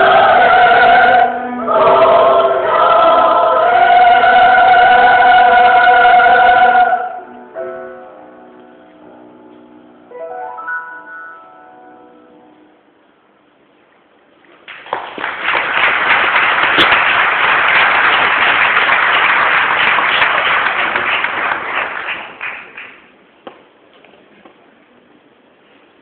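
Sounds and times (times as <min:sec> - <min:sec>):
audience applauding: 0:14.6 - 0:23.1.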